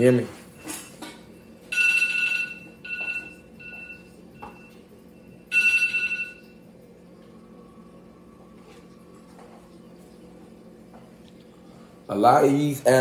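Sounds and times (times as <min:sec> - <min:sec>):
electronic ringing tone: 0:00.6 - 0:06.6.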